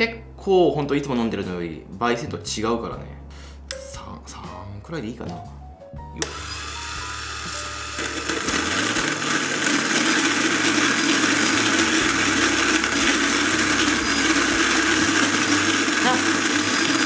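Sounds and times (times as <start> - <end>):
coffee grinder grinding: 6.2 - 17.0.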